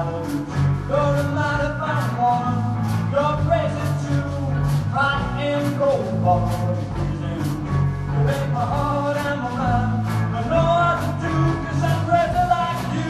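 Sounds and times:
drum kit with cymbals: 0:00.0 - 0:13.0
electric bass: 0:00.0 - 0:13.0
electric guitar: 0:00.0 - 0:13.0.

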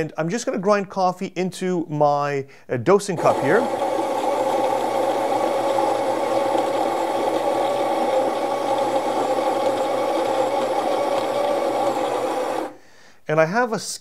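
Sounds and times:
coffee grinder whirring: 0:03.2 - 0:12.8.

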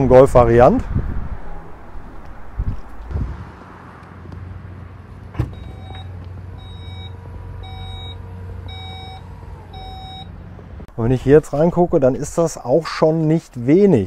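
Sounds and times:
warning beeps: 0:05.5 - 0:10.3.

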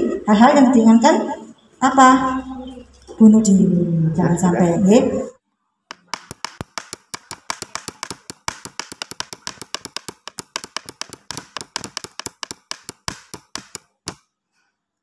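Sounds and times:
keyboard key clicks: 0:05.9 - 0:14.2.

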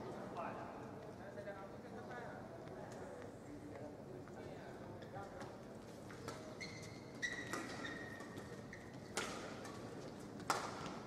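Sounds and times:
shoes squeaking on court: 0:06.2 - 0:10.3
racket striking shuttlecock: 0:10.4 - 0:11.0.

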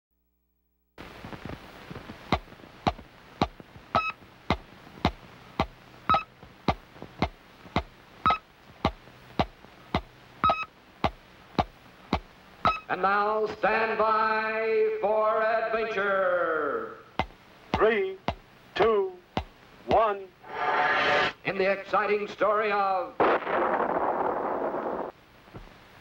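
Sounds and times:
electronic ticking clicks: 0:02.3 - 0:04.2, 0:05.0 - 0:12.9
short high beep: 0:12.7 - 0:12.9.

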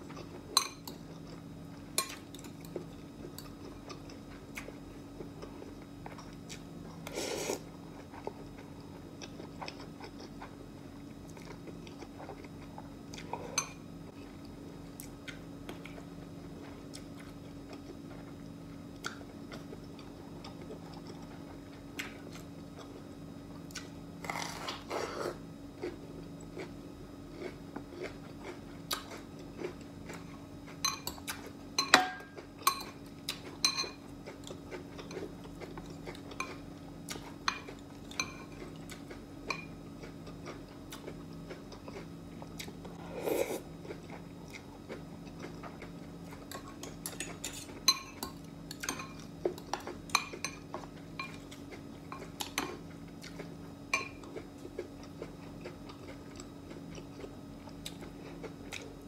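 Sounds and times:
faint steady hum: 0:00.0 - 0:59.0
chewing: 0:02.0 - 0:10.6, 0:23.7 - 0:31.5, 0:32.2 - 0:59.0.

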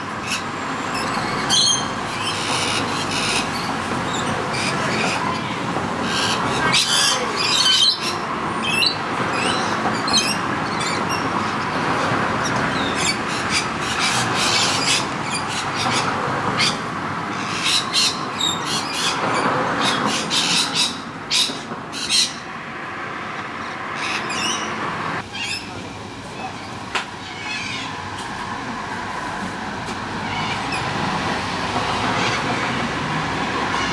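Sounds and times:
steady background noise: 0:00.0 - 0:33.9
parrots shrill calls: 0:00.2 - 0:11.3, 0:12.4 - 0:22.5, 0:24.0 - 0:25.7, 0:27.2 - 0:28.0.

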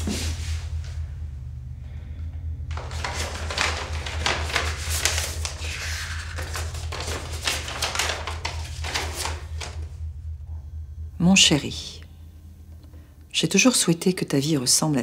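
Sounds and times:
steady low hum: 0:00.0 - 0:15.0
paper rustling and crinkling: 0:02.7 - 0:09.9.

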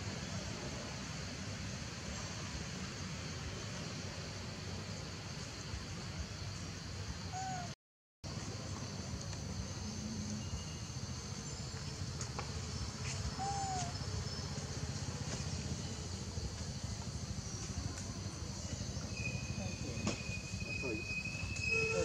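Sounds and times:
high insect drone: 0:00.0 - 0:07.7, 0:08.3 - 0:22.0
faint bird chirps: 0:07.2 - 0:07.8, 0:12.8 - 0:16.6
bird call: 0:13.2 - 0:14.0.

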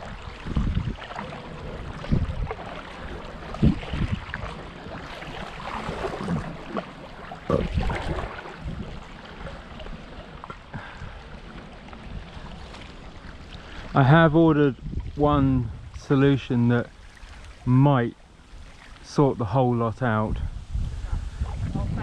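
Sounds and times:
low paddle stroke thumps: 0:00.0 - 0:13.5
water splashing along paddleboard: 0:00.0 - 0:19.5, 0:20.7 - 0:22.0.

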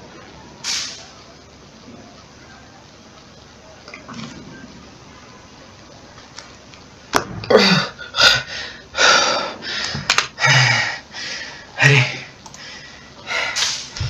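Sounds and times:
man breathing hard: 0:07.5 - 0:13.7.

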